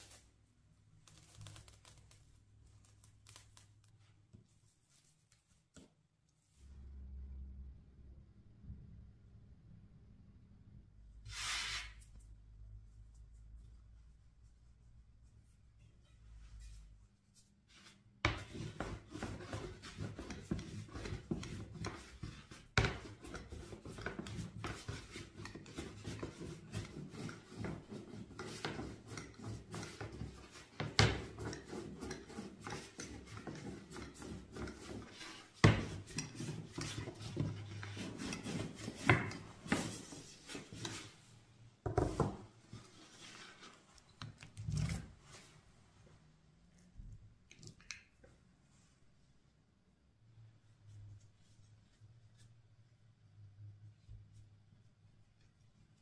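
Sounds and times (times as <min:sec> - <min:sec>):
hands rubbing food on wood: 0:18.4 - 0:41.2.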